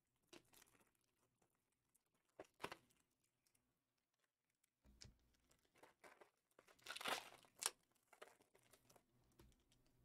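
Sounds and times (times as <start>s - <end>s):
card pack wrappers crinkling: 5.4s - 9.6s.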